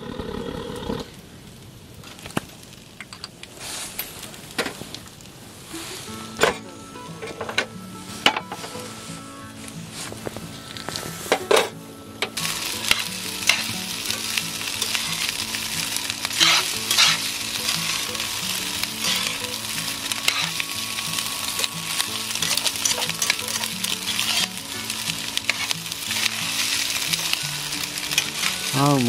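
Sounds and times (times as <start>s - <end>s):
rice sizzling in a pan: 0.0s - 29.0s
metal spatula scraping pan: 9.9s - 28.8s.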